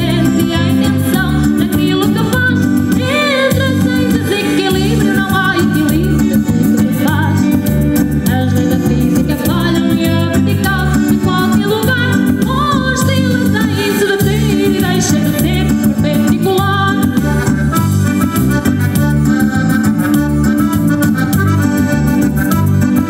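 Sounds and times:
woman singing: 0.0 - 17.6
electric guitar: 0.0 - 23.0
electric keyboard: 0.0 - 23.0.

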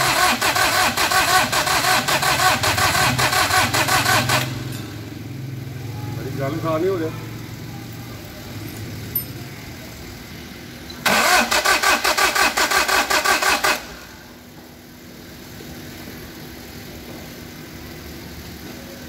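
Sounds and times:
starter motor cranking engine: 0.0 - 5.0, 10.9 - 14.1.

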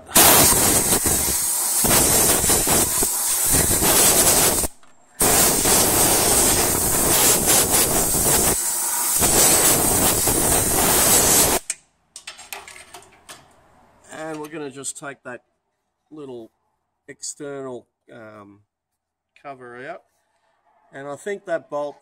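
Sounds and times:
compressed air blow gun hissing: 0.0 - 11.7.

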